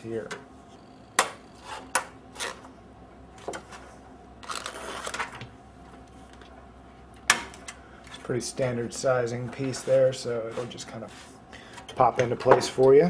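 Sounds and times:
rustling scrape: 9.4 - 11.4.

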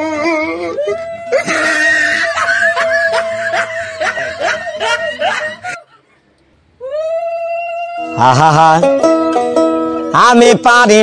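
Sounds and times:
plucked melody: 8.0 - 11.0.

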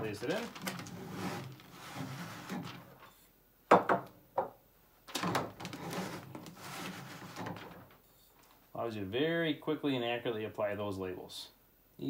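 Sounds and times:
bottle rubbing in plastic cradle: 0.0 - 3.1, 5.2 - 8.0
soft rustling: 0.0 - 3.2.

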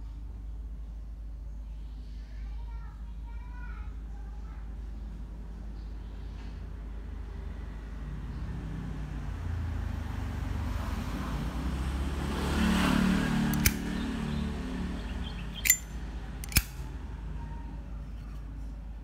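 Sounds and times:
passing vehicle rumble: 7.2 - 17.9
metallic lighter lid clicks: 13.5 - 13.9, 15.6 - 16.8.

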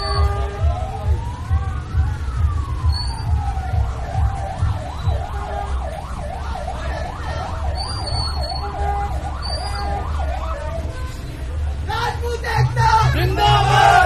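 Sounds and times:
electronic siren yelping: 0.0 - 11.0.

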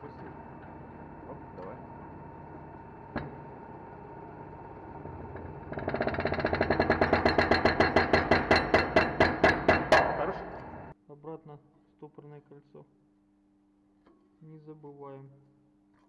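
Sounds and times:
rhythmic pulsing from press: 0.0 - 11.0
shop press humming: 0.0 - 11.0.

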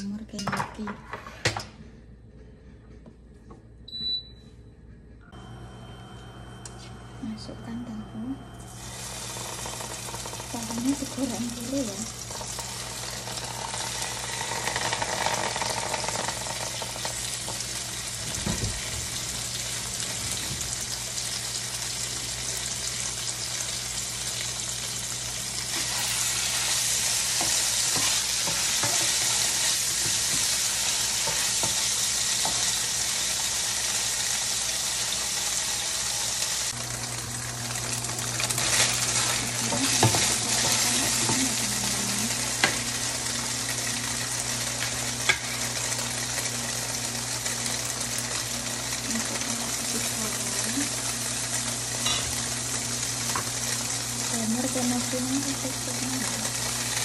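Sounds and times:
low hum: 1.8 - 17.4
tofu sizzling in oil: 8.7 - 57.0
spatula scraping wok: 25.7 - 33.3.

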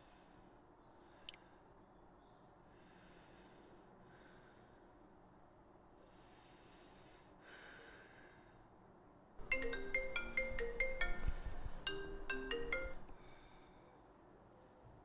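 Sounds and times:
phone ringtone melody: 9.4 - 13.1.

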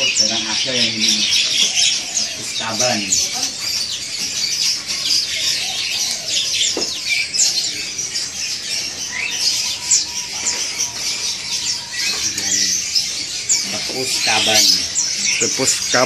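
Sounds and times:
songbirds chirping and twittering: 0.0 - 16.0.

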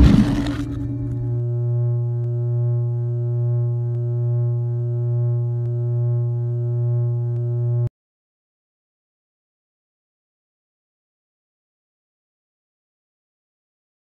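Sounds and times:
low synthesizer chord: 0.0 - 7.3.

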